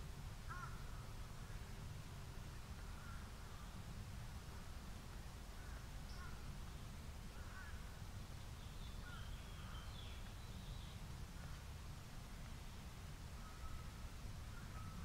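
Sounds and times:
wild bird calls: 0.5s - 1.7s, 5.6s - 6.5s, 7.3s - 8.0s, 8.6s - 11.6s.

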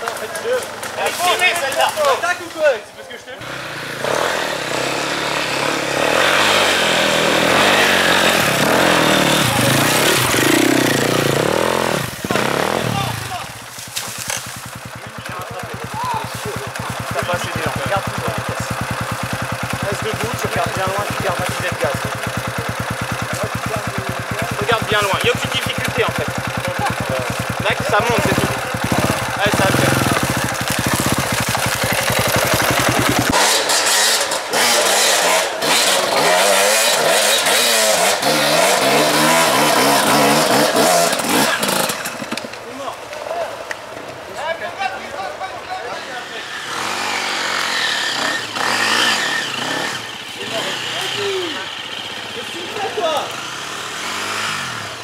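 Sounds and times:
dirt bike engine running: 0.0s - 44.0s, 46.6s - 55.0s
motorcycle revving: 0.0s - 55.0s
motorcycle engine idling: 7.3s - 33.4s.

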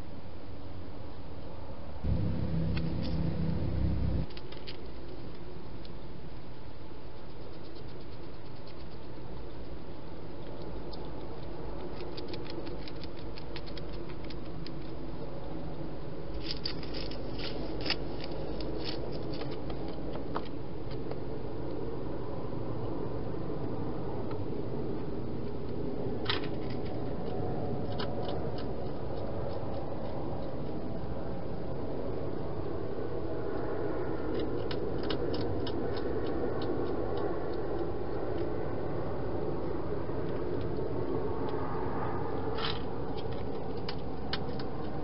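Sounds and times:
low hum: 2.0s - 4.4s
hedgehog crunching dry food: 7.2s - 15.0s, 16.4s - 20.4s, 26.4s - 30.9s, 34.3s - 38.6s.

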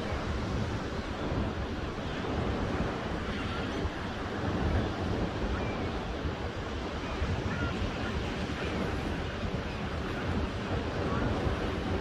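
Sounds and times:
waves breaking on beach: 0.0s - 12.0s
wind rumble on microphone: 0.0s - 12.0s.

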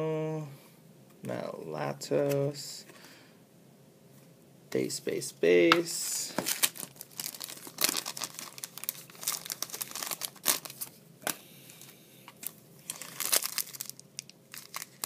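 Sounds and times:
wrapper tearing: 6.4s - 10.9s, 12.3s - 15.0s
foil wrapper crinkling: 6.4s - 15.0s.

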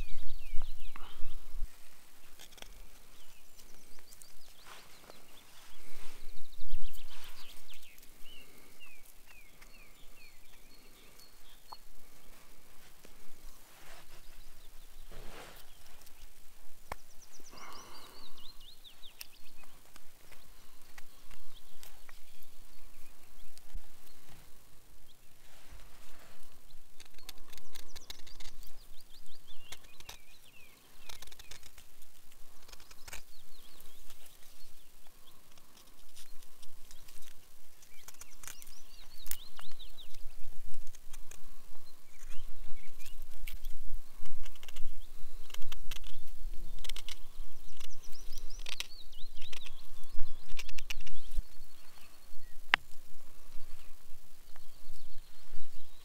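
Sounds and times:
birds singing: 0.0s - 56.0s.

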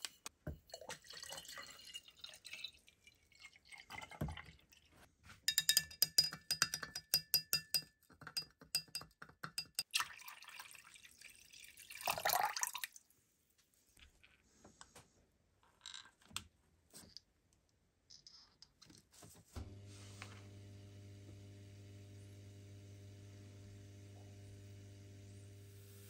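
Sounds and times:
metal rod clinking against glass: 5.5s - 9.8s
water pouring with a splash: 9.9s - 13.0s.

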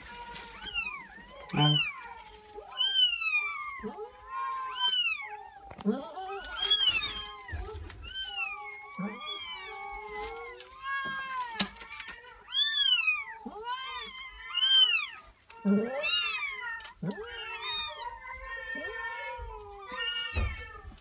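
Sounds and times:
kittens mewing: 0.0s - 21.0s.

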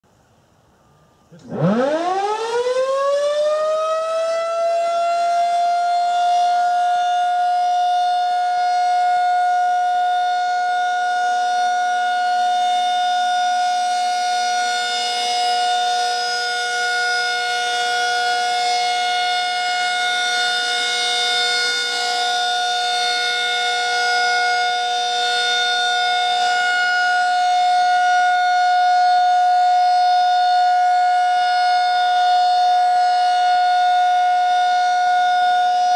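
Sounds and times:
rotating two-tone siren wailing: 1.4s - 35.9s.

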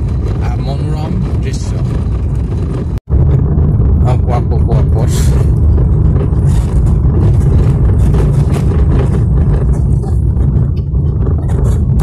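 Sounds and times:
vehicle rattling: 0.0s - 12.0s
vehicle rumbling on rough road: 0.0s - 12.0s.

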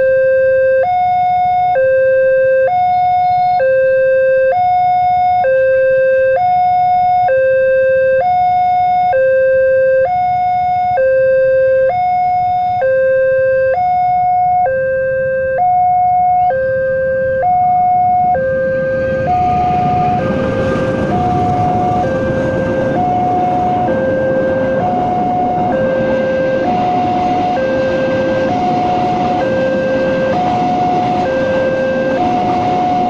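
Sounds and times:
level crossing two-tone alarm: 0.0s - 33.0s
train rushing noise: 18.0s - 33.0s.

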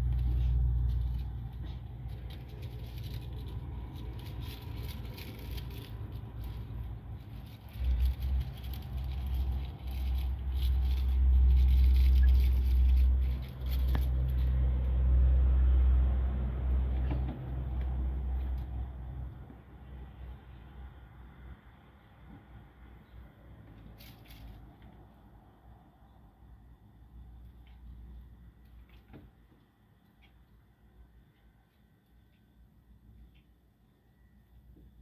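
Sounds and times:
light rustling and rattling: 0.0s - 14.6s, 23.8s - 25.0s.

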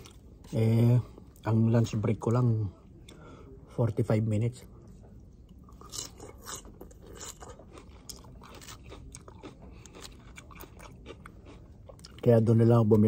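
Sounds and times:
person chewing crisp lettuce: 5.7s - 12.3s.

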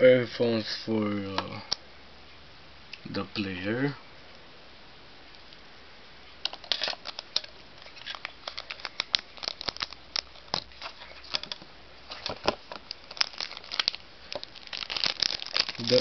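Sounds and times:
packaging crinkling and rustling: 6.4s - 16.0s.

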